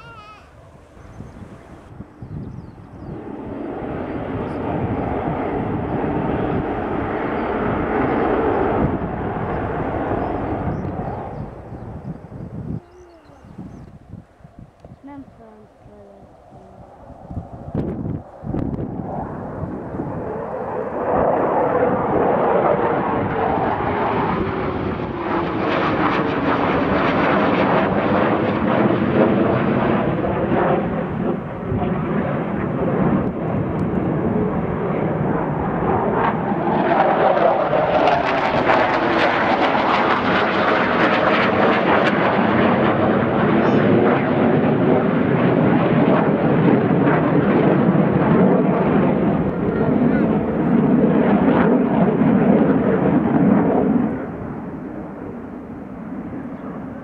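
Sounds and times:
fighter jet flying past: 0.0s - 57.0s.

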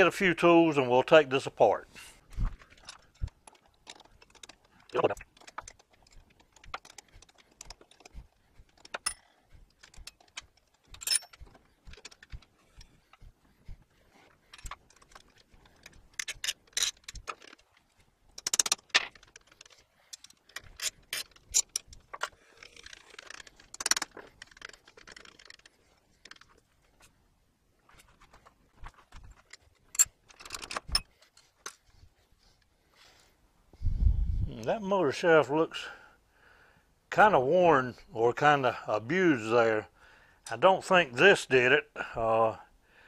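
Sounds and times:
metal scraping rattle: 2.2s - 13.6s, 14.2s - 27.2s
steel parts clinking: 8.8s - 12.9s, 14.5s - 25.6s
ratchet wrench clicking: 18.4s - 21.9s, 22.6s - 25.7s.

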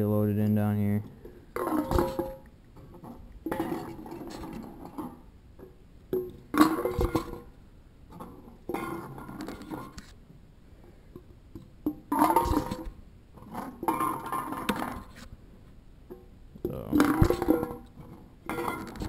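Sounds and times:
aluminium cans clinking and clattering: 1.2s - 5.2s, 6.1s - 7.5s, 11.9s - 15.2s, 16.1s - 19.0s.

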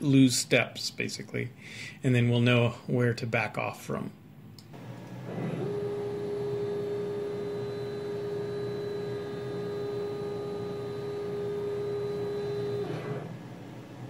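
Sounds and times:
stepper motor whining: 4.7s - 14.0s.

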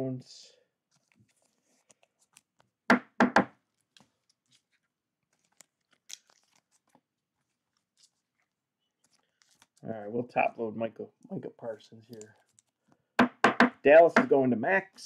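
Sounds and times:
trading cards clicking and rustling: 0.9s - 2.8s, 3.8s - 9.8s, 12.0s - 12.9s
loud knocks on table: 2.9s - 3.5s, 13.2s - 14.3s.

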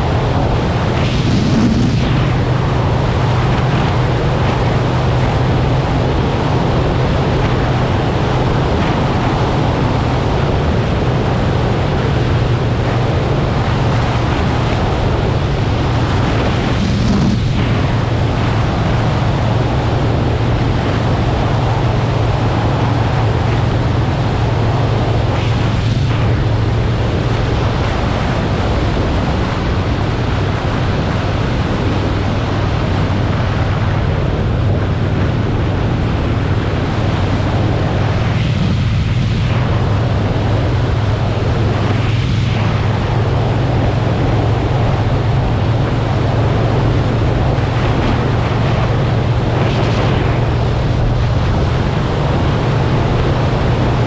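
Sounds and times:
motorcycle engine cruising: 0.0s - 54.0s
wind rush on microphone: 0.0s - 54.0s.

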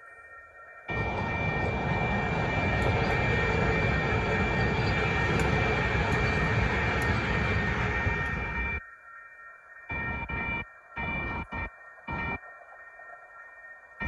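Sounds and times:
crossing warning bells ringing: 0.9s - 8.8s
train rumbling past: 0.9s - 8.8s.

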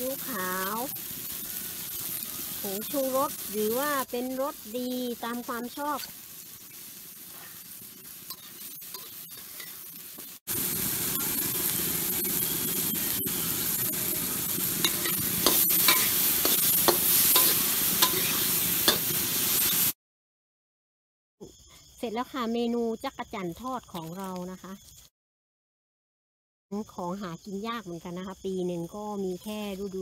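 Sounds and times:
cicadas: 0.0s - 19.1s, 21.4s - 25.1s, 26.7s - 30.0s
garlic sizzling in hot oil: 0.0s - 20.0s.

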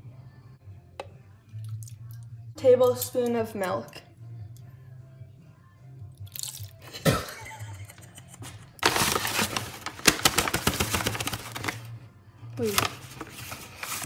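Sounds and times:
background music: 0.0s - 14.0s
paper bag crinkling: 8.8s - 11.9s, 12.6s - 14.0s.

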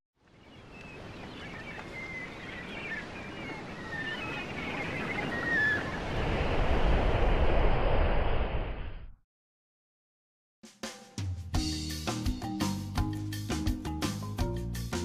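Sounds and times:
ocean water and wind: 0.2s - 9.0s.

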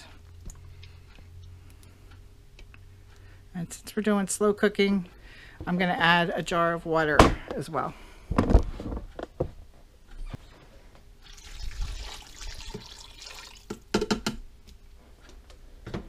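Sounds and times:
water pouring into a pot: 11.2s - 13.8s.

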